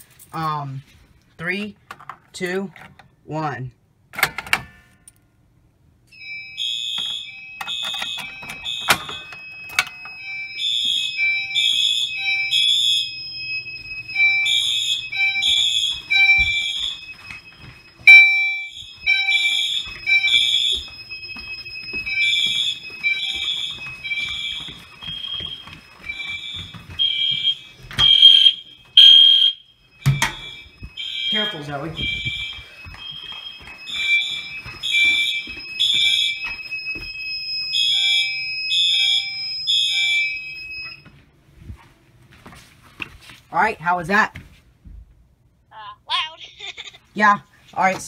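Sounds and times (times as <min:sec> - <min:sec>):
fire alarm horns blasting: 0:06.1 - 0:41.1.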